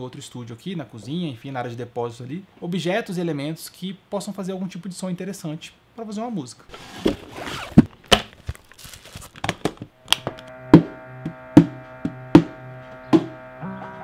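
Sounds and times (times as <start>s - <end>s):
music with held notes and beat: 10.2s - 14.0s.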